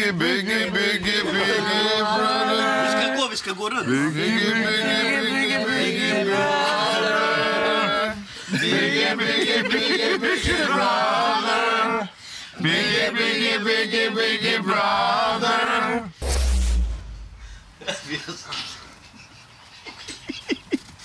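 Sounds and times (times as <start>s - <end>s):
voices singing a cappella: 0.0s - 16.2s.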